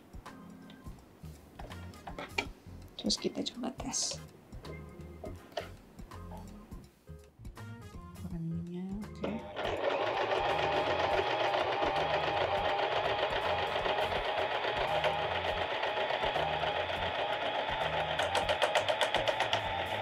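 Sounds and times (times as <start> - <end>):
sewing machine running: 9.2 - 20.0.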